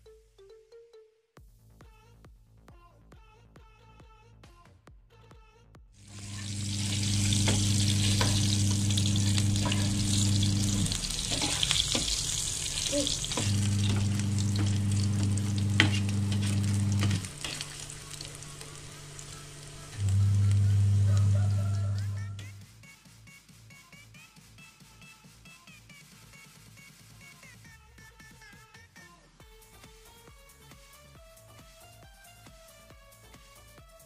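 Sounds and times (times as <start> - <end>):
oil sizzling in a frying pan: 6.0 - 22.2
steady low hum: 6.0 - 22.5
spatula clicking and scraping: 11.0 - 18.8.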